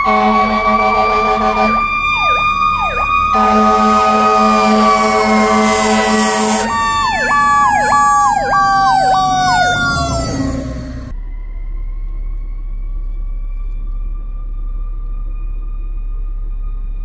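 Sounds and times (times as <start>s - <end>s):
truck horn blast: 0.0s - 1.9s, 3.3s - 7.8s
siren yelping: 0.0s - 11.6s
siren whine: 0.0s - 17.0s.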